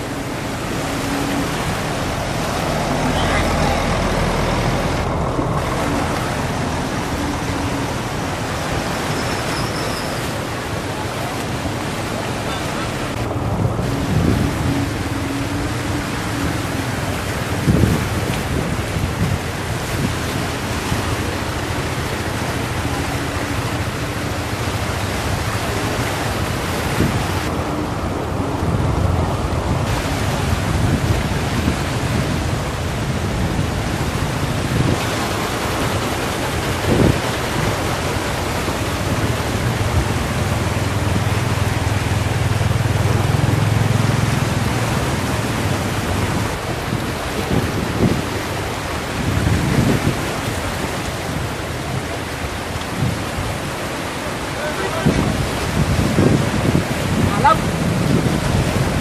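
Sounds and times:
vehicle engines running: 0.0s - 9.1s, 37.7s - 47.5s
floodwater rushing: 0.0s - 59.0s.

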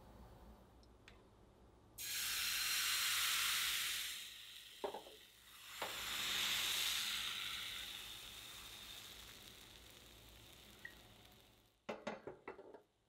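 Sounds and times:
batter sizzling in a frying pan: 2.0s - 11.9s.

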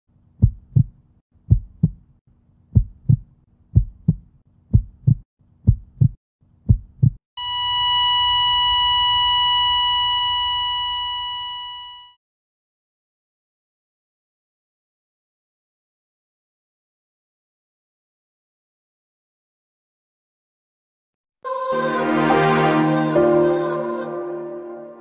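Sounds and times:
heartbeat thumps: 0.4s - 2.1s, 2.7s - 7.2s
heart monitor flatline beep: 7.4s - 12.2s.

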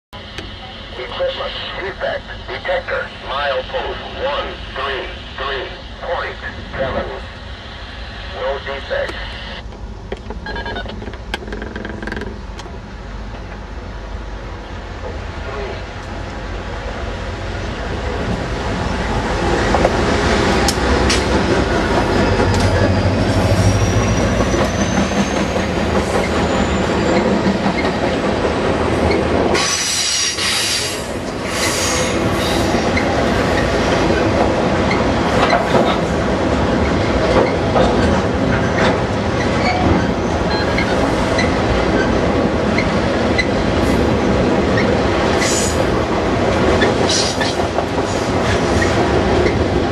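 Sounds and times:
diesel locomotives approaching: 0.2s - 49.9s
freight cars rumbling and clattering: 9.7s - 29.6s, 32.8s - 49.9s
high-pitched wheel squeal: 22.5s - 25.6s.

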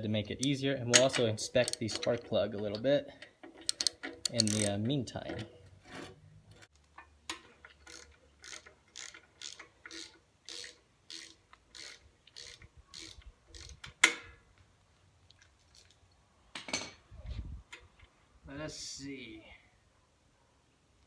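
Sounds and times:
ratchet wrench clicking: 0.4s - 2.8s, 3.6s - 4.8s, 7.8s - 13.9s.

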